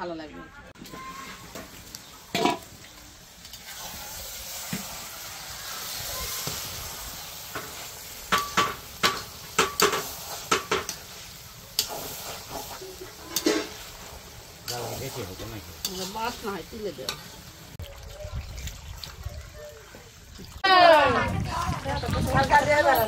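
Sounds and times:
meat sizzling in a pot: 0.8s - 17.8s.

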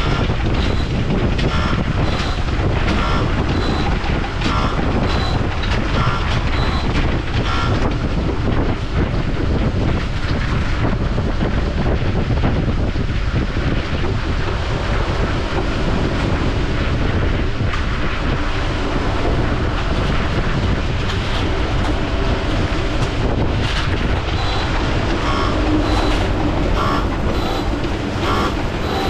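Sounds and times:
heavy machinery rumble: 0.0s - 29.0s
wind on microphone: 0.0s - 29.0s
vehicle reversing alarm beeps: 3.5s - 3.9s, 6.5s - 7.0s, 24.4s - 29.0s.

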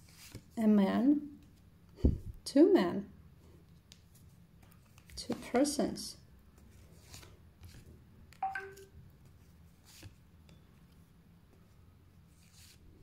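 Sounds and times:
cards swishing and tapping on table: 3.9s - 5.8s.

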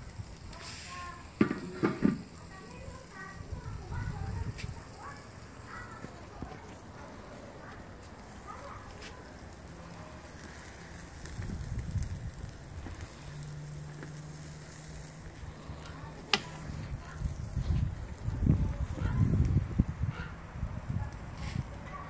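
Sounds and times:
meat sizzling on a grill: 0.0s - 22.0s
wind rumble on microphone: 3.4s - 4.9s, 11.1s - 13.2s, 15.3s - 22.0s.

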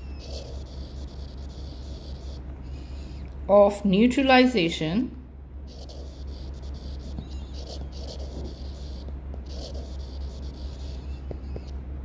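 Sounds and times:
stylus scratching on tablet screen: 0.0s - 2.4s, 5.7s - 11.8s
steady low hum: 0.0s - 12.0s.

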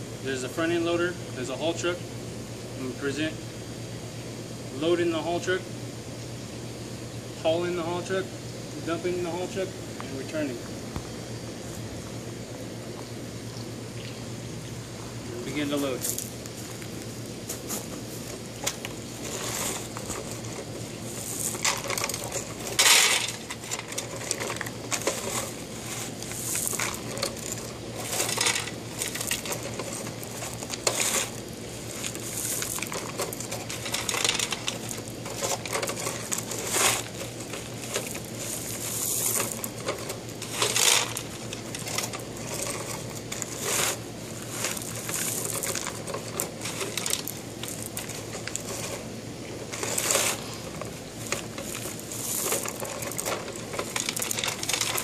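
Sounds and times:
gravel scraping and crunching: 15.0s - 55.0s
rocks clattering into toy truck: 21.3s - 31.4s, 32.0s - 55.0s.

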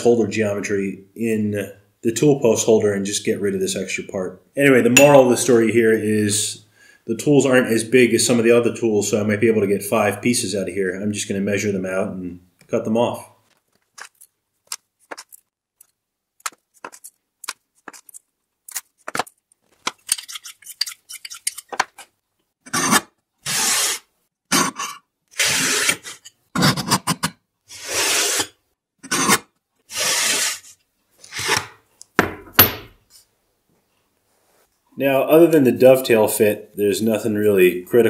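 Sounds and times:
steel scraping strokes: 27.7s - 29.3s, 29.9s - 31.7s.

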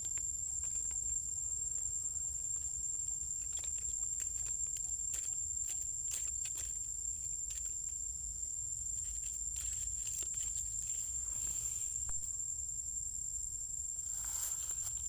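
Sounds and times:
steps rustling on dry leaves: 14.1s - 15.0s.

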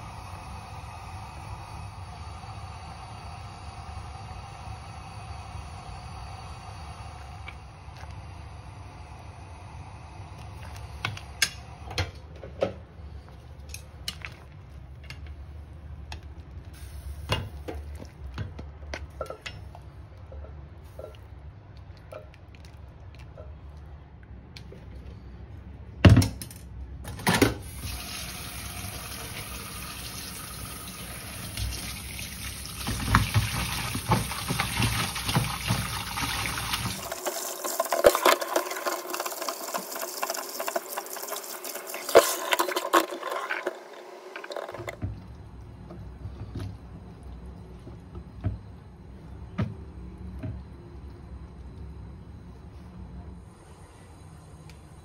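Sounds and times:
water running: 27.6s - 45.4s.

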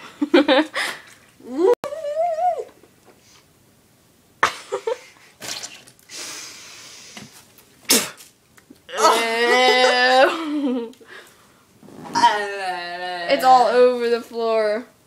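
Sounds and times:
girl wailing: 8.9s - 10.5s, 12.2s - 13.7s.

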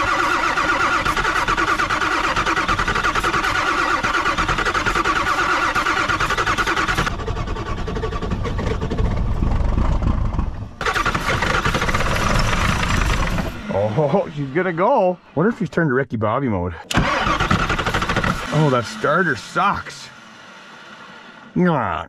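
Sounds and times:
starter motor whine: 0.0s - 15.4s, 16.9s - 21.8s
diesel engine cranking: 0.0s - 16.0s, 16.6s - 22.0s.

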